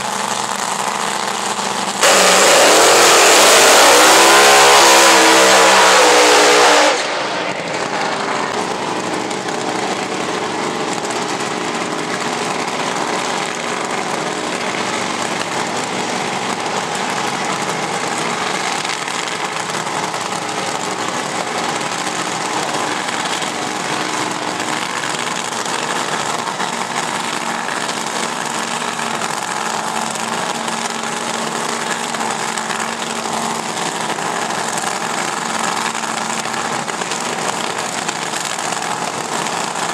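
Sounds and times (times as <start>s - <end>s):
dragster engines idling: 0.0s - 6.4s, 7.0s - 39.9s
dragster engine revving: 0.0s - 39.9s.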